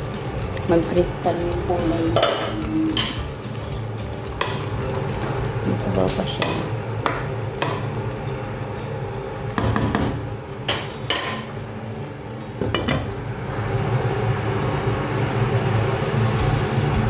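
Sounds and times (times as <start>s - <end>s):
cookware knocks and clinks: 9.6s - 11.5s.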